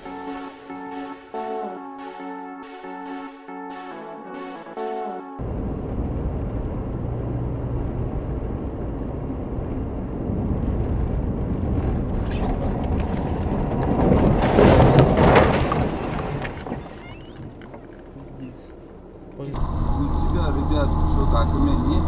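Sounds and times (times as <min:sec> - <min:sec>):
car road and engine noise: 0:05.4 - 0:22.0
snow clattering against windshield: 0:10.6 - 0:19.5.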